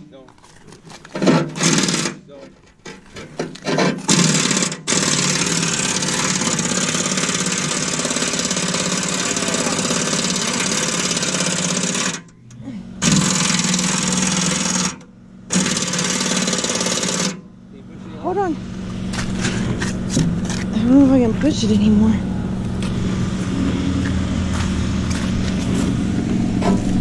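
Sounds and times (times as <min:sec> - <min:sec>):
impact wrench hammering: 0:03.4 - 0:12.2, 0:13.0 - 0:17.4.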